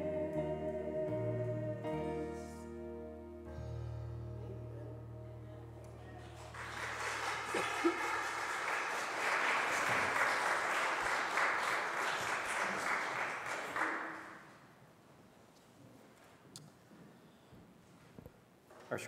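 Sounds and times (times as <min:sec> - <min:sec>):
held choir chord: 0:00.0 - 0:06.6
congregation applauding: 0:05.9 - 0:14.6.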